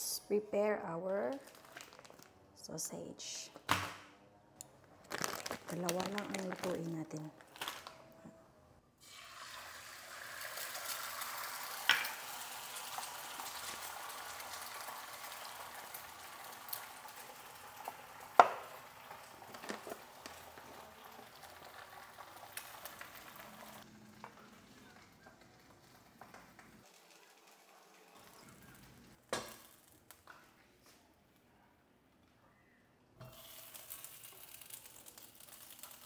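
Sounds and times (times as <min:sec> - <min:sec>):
sausages sizzling in frying pan: 0:09.0 - 0:23.9, 0:33.2 - 0:36.0.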